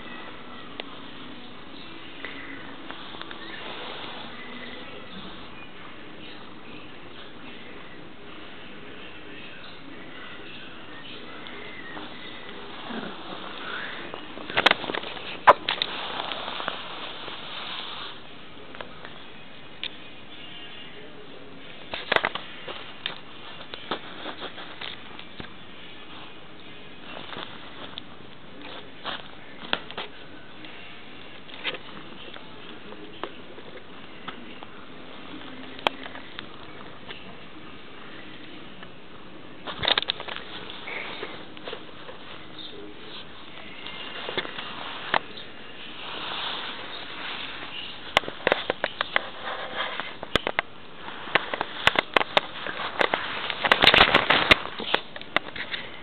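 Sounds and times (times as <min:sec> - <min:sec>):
steady hiss: 0:00.0 - 0:56.0
cat rustling on bedding: 0:01.8 - 0:05.4, 0:11.2 - 0:19.0, 0:21.9 - 0:37.4, 0:39.6 - 0:56.0.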